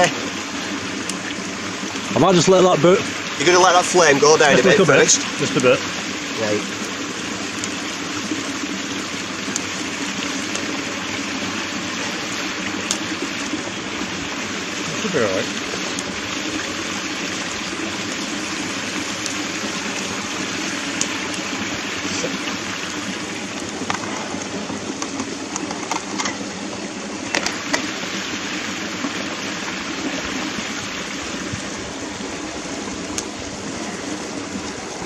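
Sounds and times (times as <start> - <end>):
food sizzling on grill: 0.0 - 31.5
fat crackling and popping: 7.6 - 14.5, 15.5 - 28.0.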